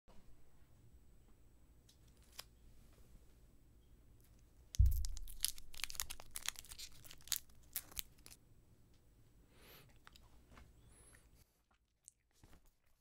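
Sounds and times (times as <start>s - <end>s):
thump: 4.8s - 5.3s
crackling tearing clicks: 4.8s - 8.4s
handling packaging: 4.8s - 8.4s.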